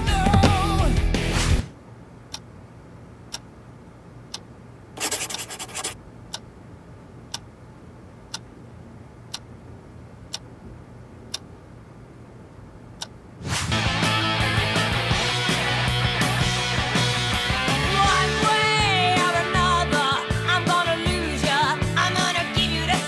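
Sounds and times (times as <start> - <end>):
faint low hum: 1.7 - 13.4
scratchy noise: 5.0 - 6.0
clock ticking: 5.3 - 6.5, 8.3 - 8.5, 10.3 - 10.5.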